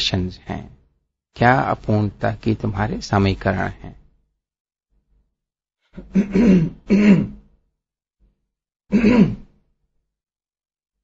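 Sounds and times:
person clearing throat: 6.0s - 7.5s, 8.9s - 9.6s.

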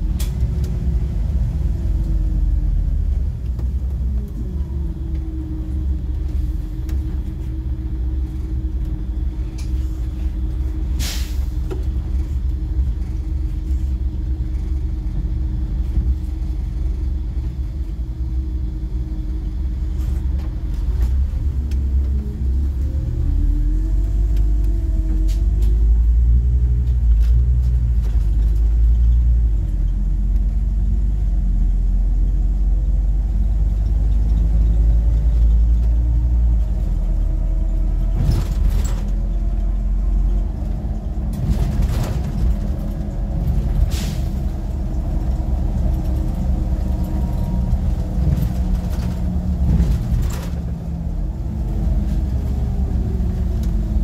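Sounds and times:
diesel bus engine rumbling: 0.0s - 54.0s
air brake hisses: 11.0s - 11.6s, 43.9s - 44.4s.

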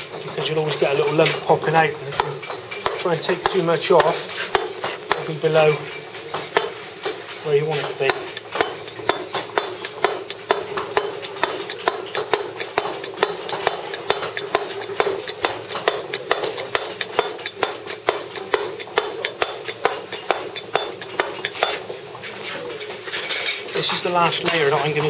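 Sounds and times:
mallet tapping chisel into stone: 2.1s - 5.5s, 7.6s - 21.9s.

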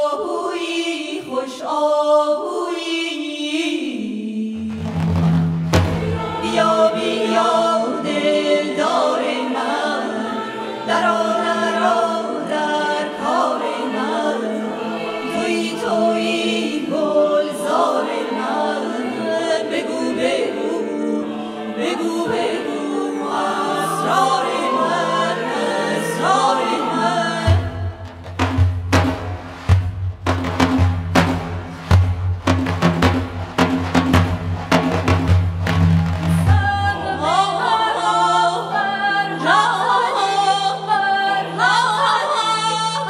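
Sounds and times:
mixed choir singing: 0.0s - 5.1s, 5.7s - 28.5s, 32.8s - 43.0s
frame drum strokes: 4.6s - 7.0s, 27.4s - 37.3s.

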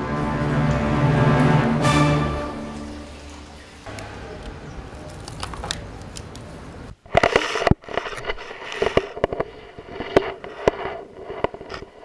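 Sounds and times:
camera handling rustle: 5.0s - 6.5s, 7.1s - 12.0s.

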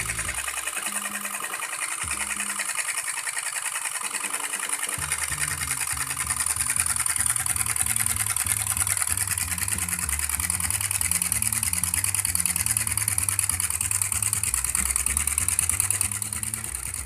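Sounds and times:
small engines clattering: 0.0s - 17.0s.

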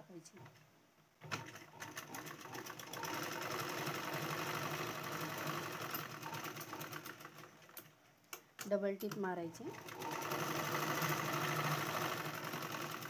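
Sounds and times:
sewing machine running: 1.2s - 7.8s, 9.6s - 13.0s.

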